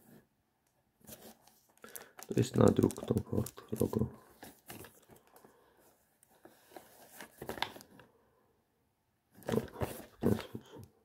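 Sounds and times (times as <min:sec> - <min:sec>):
cellophane crinkling: 0:01.3 - 0:05.4.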